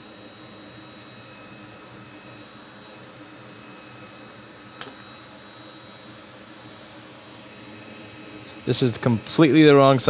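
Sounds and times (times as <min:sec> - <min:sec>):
faint high whine: 0:00.0 - 0:10.0.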